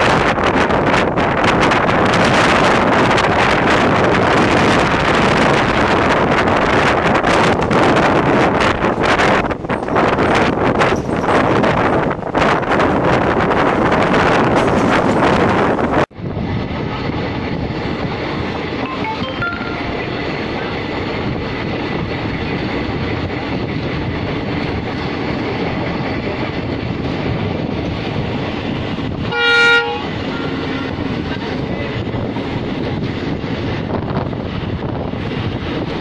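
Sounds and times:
train wheels on rails: 0.0s - 18.9s, 20.0s - 36.0s
diesel locomotive horn blast: 29.2s - 31.2s.

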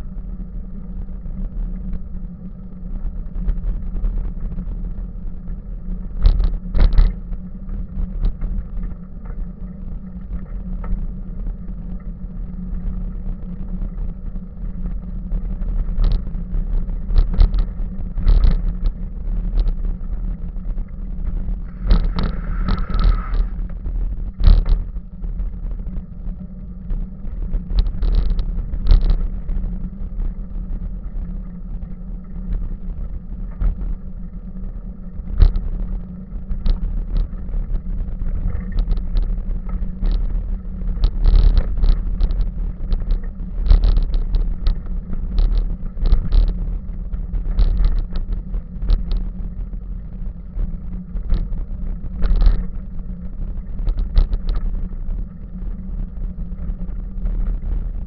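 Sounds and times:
bicycle rumbling on rough path: 0.0s - 58.0s
bicycle knocks and rattles: 24.4s - 24.8s.

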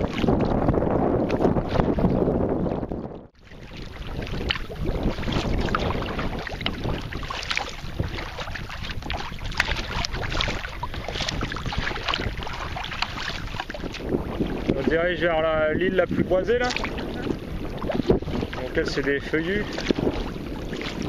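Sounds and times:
water splashing against kayak: 0.0s - 21.0s
wind buffeting microphone: 0.0s - 21.0s.

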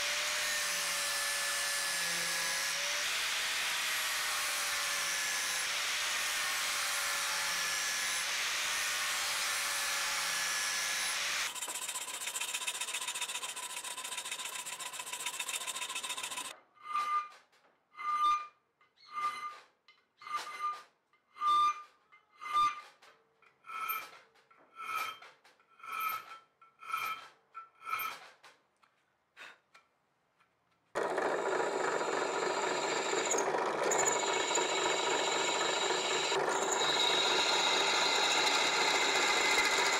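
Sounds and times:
angle grinder grinding steel: 0.1s - 16.5s, 31.0s - 39.9s
file strokes on ringing steel blade: 10.7s - 17.3s, 23.7s - 24.2s, 24.8s - 28.2s, 32.8s - 39.9s
steady machine whir: 31.0s - 39.9s.

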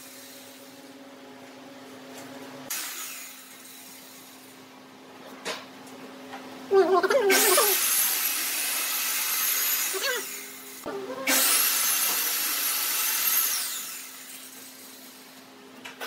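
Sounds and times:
power tool motor whining: 7.3s - 15.2s.

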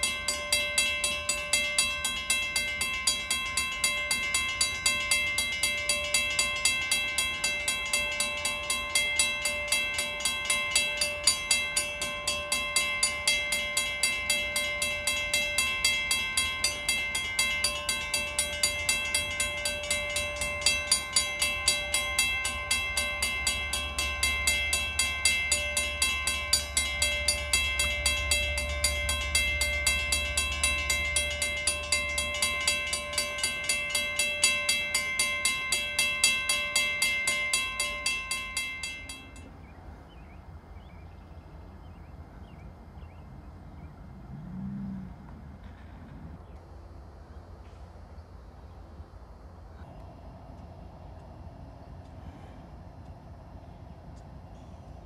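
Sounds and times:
railroad crossing bell ringing: 0.0s - 42.4s.

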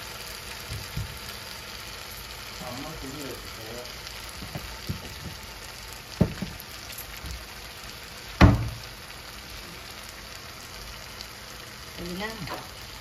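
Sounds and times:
masala sizzling in oil: 0.0s - 13.0s
sharp knocks: 8.4s - 8.8s.

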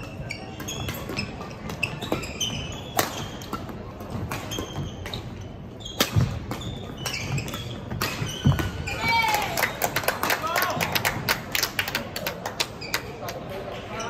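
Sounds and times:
shoes squeaking on court floor: 0.0s - 9.8s, 12.8s - 14.0s.

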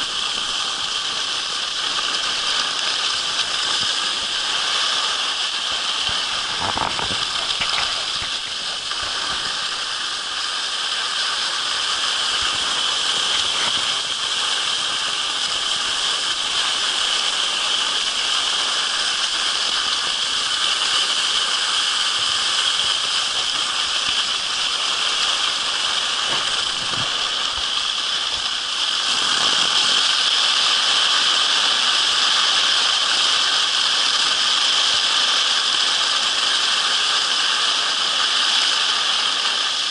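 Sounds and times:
skis hissing over snow: 0.0s - 39.9s
wind rushing over microphone: 5.9s - 10.1s, 26.3s - 30.1s.

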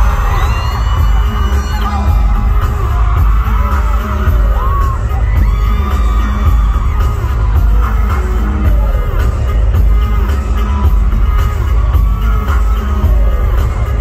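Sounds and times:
fans screaming and cheering: 0.0s - 14.0s
pop song through concert speakers: 0.0s - 14.0s.

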